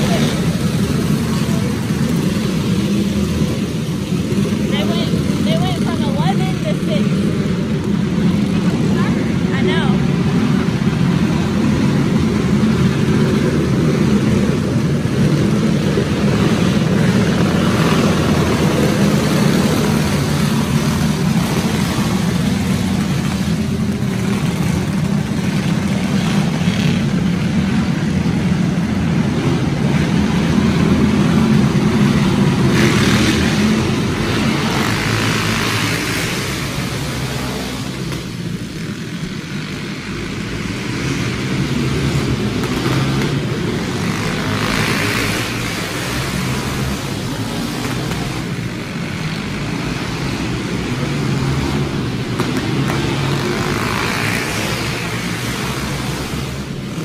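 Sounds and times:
go-kart engines droning: 0:00.0 - 0:57.0.

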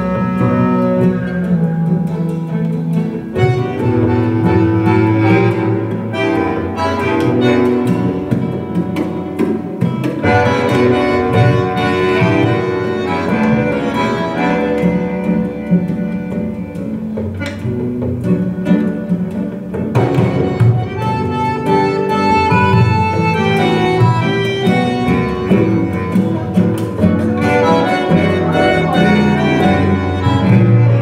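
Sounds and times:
instrumental music over loudspeakers: 0:00.0 - 0:31.0.

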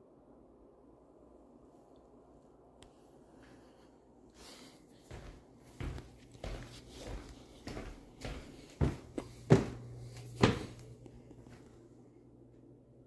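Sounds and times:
low steady hum: 0:00.0 - 0:13.0
footsteps on tile and wood: 0:05.0 - 0:11.7.

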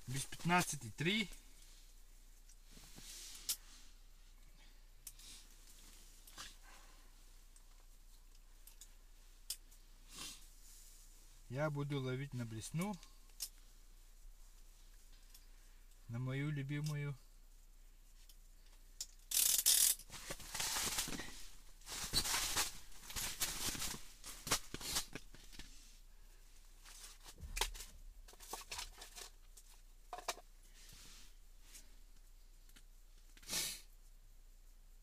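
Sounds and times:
rustling and scraping: 0:00.0 - 0:04.4, 0:18.1 - 0:33.5.

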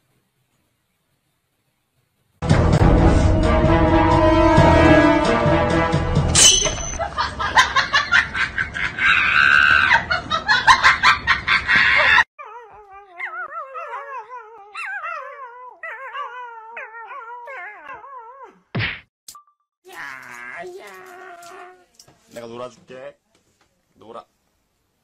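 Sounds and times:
puppy whining: 0:12.4 - 0:18.6, 0:20.0 - 0:22.0.

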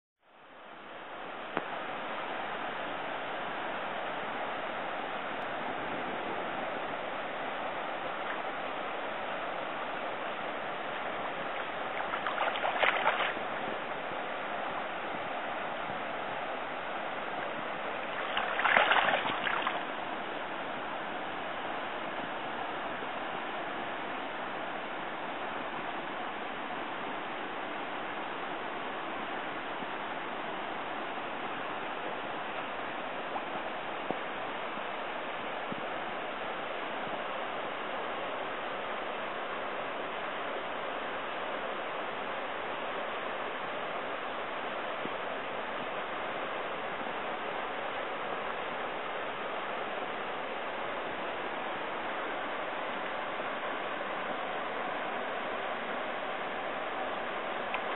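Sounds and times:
shallow stream running: 0:00.4 - 0:57.9
fish splashing in water: 0:11.6 - 0:13.5, 0:18.1 - 0:19.9.

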